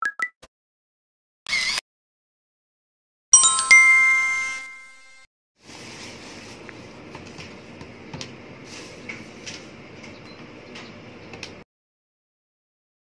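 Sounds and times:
plastic bag rustling: 0:05.6 - 0:07.6.

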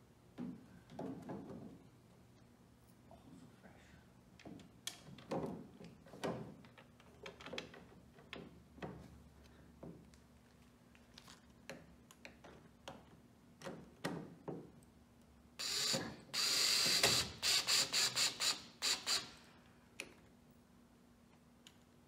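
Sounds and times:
drill clicks: 0:15.6 - 0:19.3
cordless drill running: 0:15.6 - 0:19.4.

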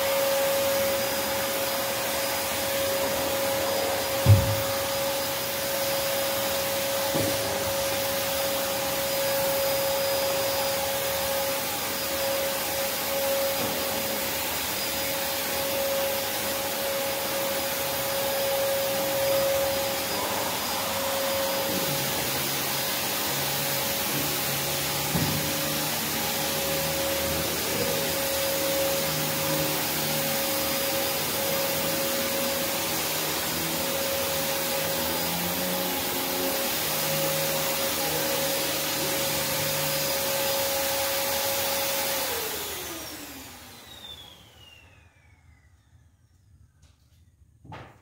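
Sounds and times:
vacuum motor whining: 0:00.0 - 0:46.1.

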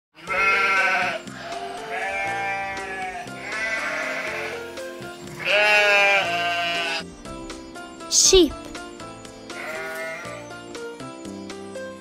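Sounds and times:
sheep bleating: 0:00.2 - 0:04.8, 0:05.4 - 0:07.0, 0:09.5 - 0:10.4
light children's music: 0:00.2 - 0:12.0.

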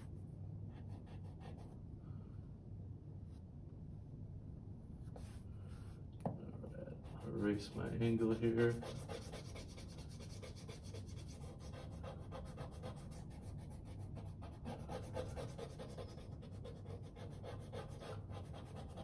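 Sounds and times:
eraser rubbing on paper: 0:07.0 - 0:19.0.

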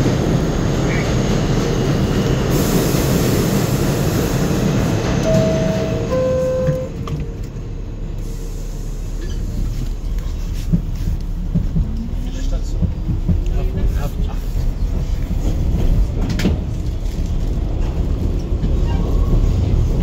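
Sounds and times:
subway car rumble and hiss: 0:00.0 - 0:20.0
train rising whine: 0:01.7 - 0:09.1
two-note falling door chime: 0:05.2 - 0:06.9.

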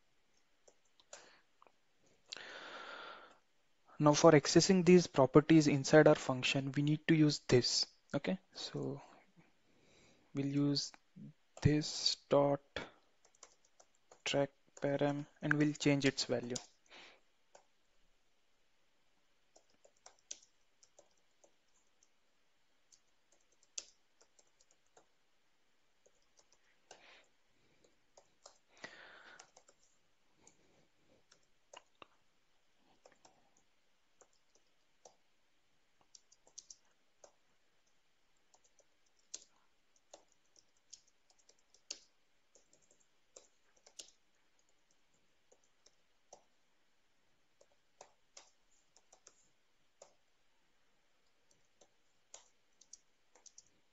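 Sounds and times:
faint computer keyboard typing: 0:00.3 - 0:02.5, 0:12.8 - 0:17.9, 0:19.4 - 0:46.7, 0:47.4 - 0:50.5, 0:51.1 - 0:53.9.

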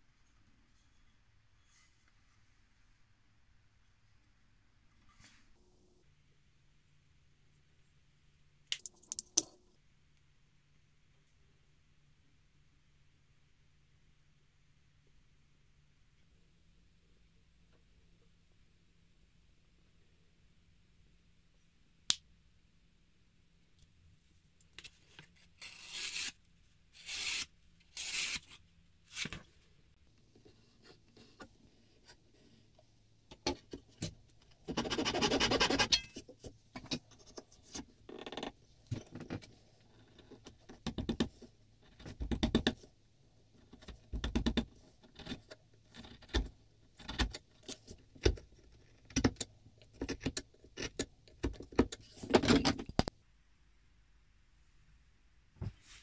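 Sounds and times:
chisel scraping wood: 0:34.7 - 0:36.0.

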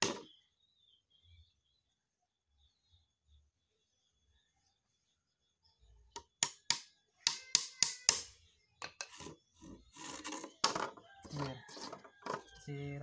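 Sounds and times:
hammer tapping nails into wood: 0:06.4 - 0:08.3
wooden frame knocking and rubbing: 0:08.8 - 0:12.6.

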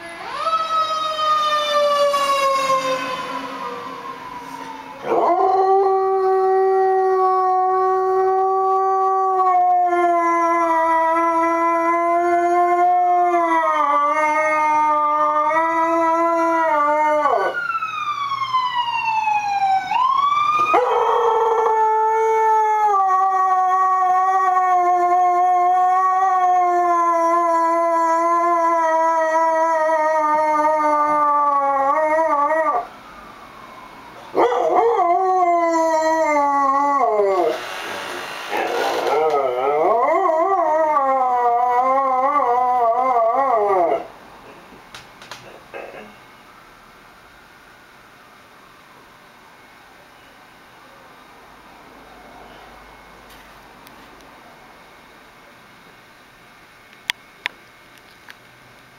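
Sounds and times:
fire engine siren: 0:00.0 - 0:44.4, 0:51.8 - 0:54.2
dog howling: 0:05.0 - 0:17.6, 0:20.6 - 0:32.9, 0:34.3 - 0:37.6, 0:38.5 - 0:44.1.

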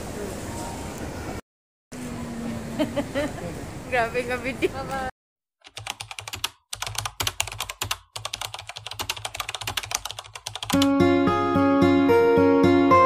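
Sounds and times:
keyboard typing clicks: 0:05.6 - 0:10.9.

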